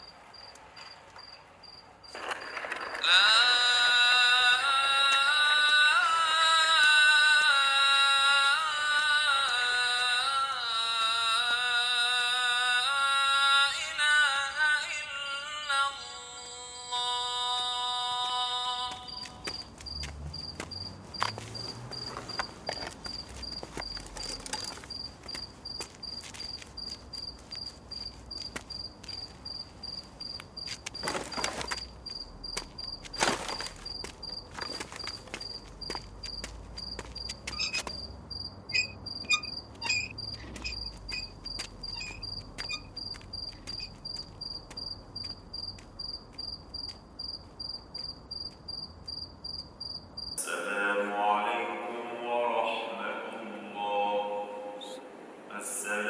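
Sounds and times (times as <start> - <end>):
crickets chirping: 0.0 - 14.2, 14.9 - 50.4
rustling noises: 18.1 - 38.0.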